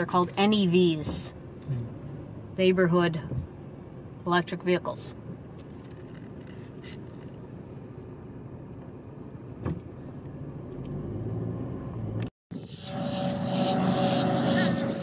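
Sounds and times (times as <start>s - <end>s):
car road noise rumble: 0.0s - 12.3s.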